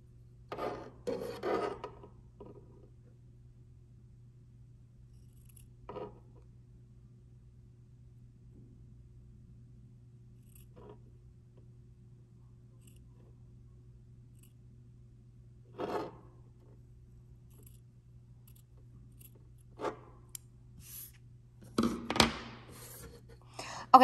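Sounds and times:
scissors snipping fabric: 5.2s - 5.8s.

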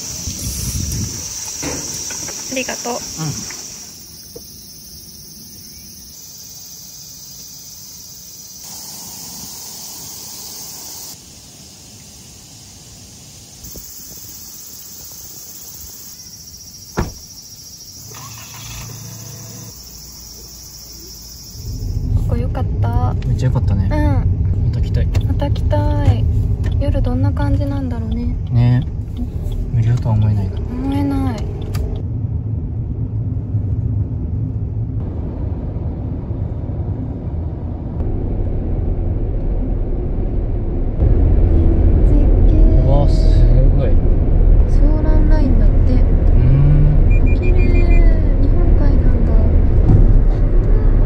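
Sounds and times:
insects droning: 0.0s - 22.8s, 23.4s - 32.0s
car engine and tyre rumble: 0.0s - 51.0s.

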